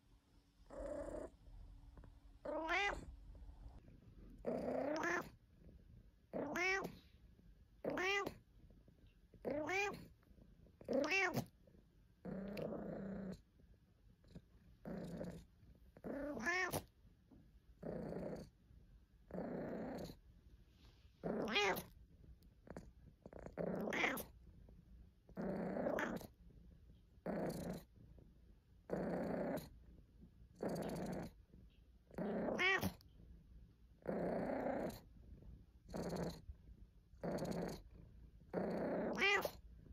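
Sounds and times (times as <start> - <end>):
cat meowing and grumbling: 2.4 - 3.1, 4.4 - 5.4, 6.3 - 7.0, 7.8 - 8.4, 9.4 - 10.1, 10.9 - 11.5, 16.0 - 16.9, 21.2 - 21.9, 23.6 - 24.3, 25.4 - 26.3, 32.2 - 33.0, 38.6 - 39.6.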